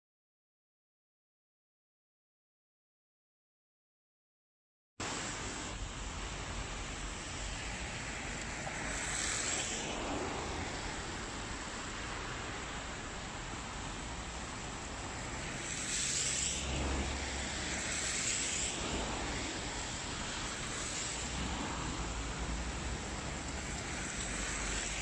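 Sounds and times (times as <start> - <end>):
traffic hiss on wet roads: 5.0 - 25.0
vehicles swishing past: 6.5 - 25.0.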